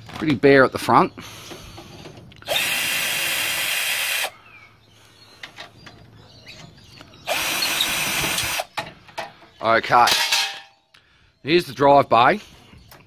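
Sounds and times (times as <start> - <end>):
cordless drill running: 2.4 - 4.3, 7.2 - 8.7.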